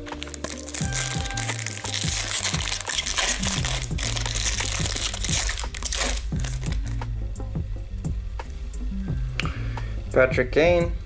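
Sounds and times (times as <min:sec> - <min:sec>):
foil wrapper crinkling: 0:00.0 - 0:07.0
background music: 0:00.0 - 0:11.0.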